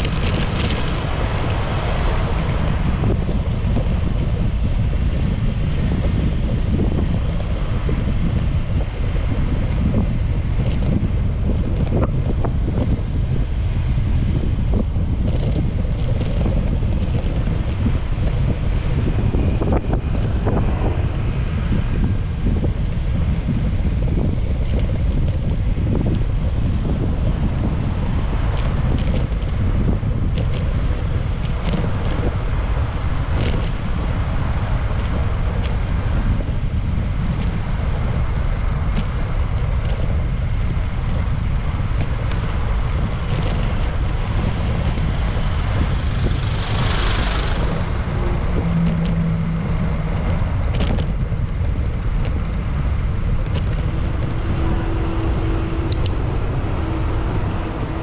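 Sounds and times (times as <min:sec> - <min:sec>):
street traffic: 0:00.0 - 0:58.0
wind rumble on microphone: 0:00.0 - 0:58.0.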